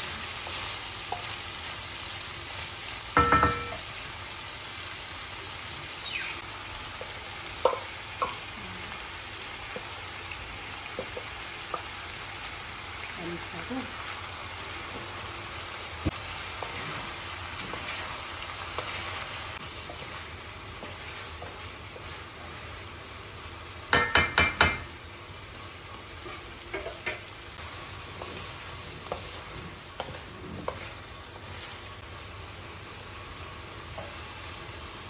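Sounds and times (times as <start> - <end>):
chicken sizzling in a wok: 0.0 - 35.0
spatula clacking against wok: 23.9 - 24.9.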